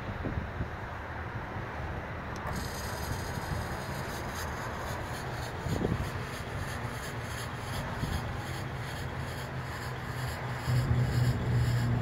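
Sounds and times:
small electric pump rasping: 2.4s - 12.0s.

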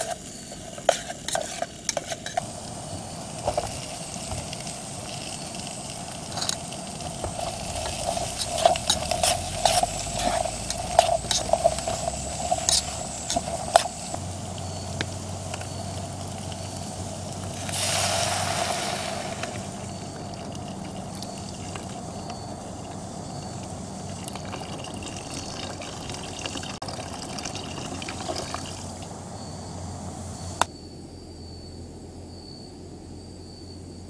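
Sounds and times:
water pouring into pot: 0.0s - 14.8s, 15.4s - 29.1s
gas burner rushing: 0.0s - 30.7s.

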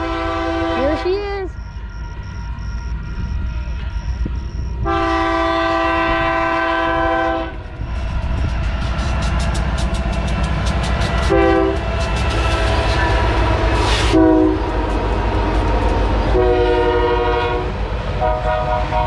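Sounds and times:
locomotive air horn blasts: 0.0s - 1.5s, 4.8s - 7.6s, 11.2s - 11.8s, 14.0s - 14.7s, 16.3s - 19.0s
diesel engines rumbling: 0.0s - 19.0s.

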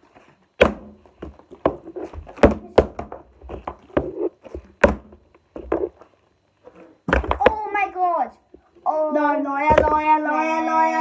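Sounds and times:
plastic bottles thudding on wooden floor: 0.6s - 5.9s, 7.0s - 7.6s, 9.7s - 10.1s.

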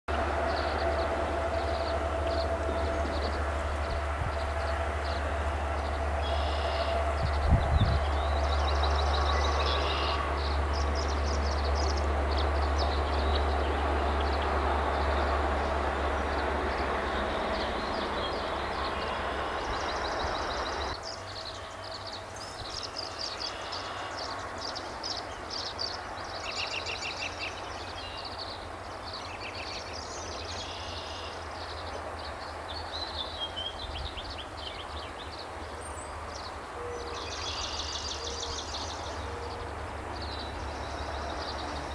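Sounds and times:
small birds chirping: 16.3s - 41.9s.

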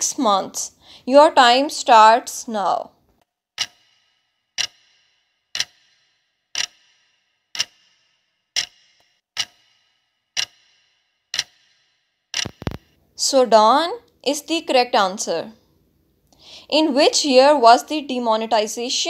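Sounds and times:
clock ticking with short ring: 3.6s - 12.8s
quick clicks: 12.4s - 12.9s.

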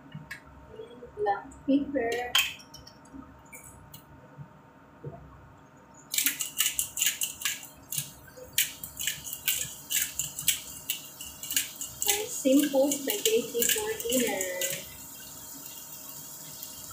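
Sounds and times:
spice grinder grinding: 6.1s - 16.8s.

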